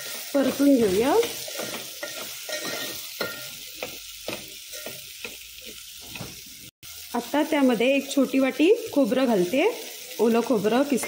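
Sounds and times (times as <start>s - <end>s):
spatula scraping metal pot: 0.0s - 5.4s
frying oil sizzling: 0.0s - 11.0s.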